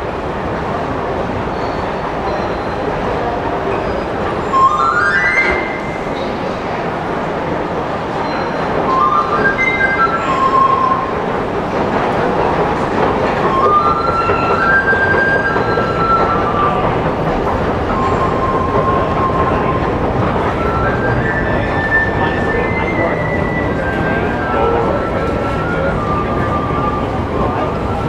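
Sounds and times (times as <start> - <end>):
escalator rumble and clatter: 0.0 - 28.0
high-pitched squeals: 1.6 - 11.4.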